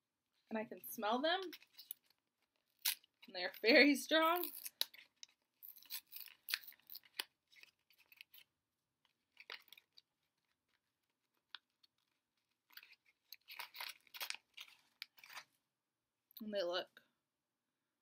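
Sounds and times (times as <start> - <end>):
faint packet crinkling: 1.4 - 15.5.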